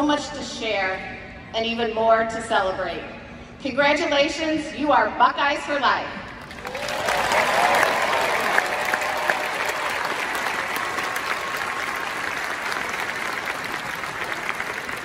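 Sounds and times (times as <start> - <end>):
large crowd applauding: 6.4 - 15.0.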